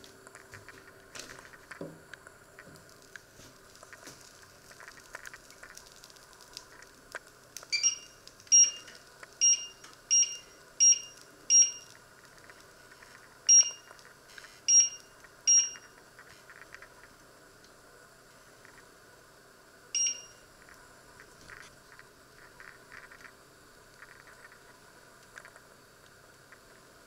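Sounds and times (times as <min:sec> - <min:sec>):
short high beeps of hob panel: 0:07.7 - 0:11.9, 0:13.5 - 0:13.9, 0:14.7 - 0:15.9, 0:20.0 - 0:20.4.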